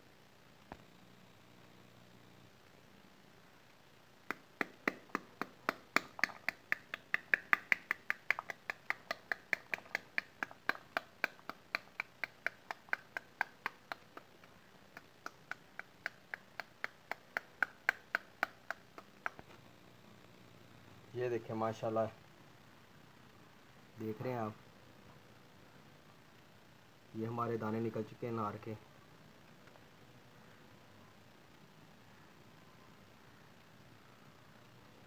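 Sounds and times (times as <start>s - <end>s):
ladle tapping pomegranate: 4.3s - 19.5s.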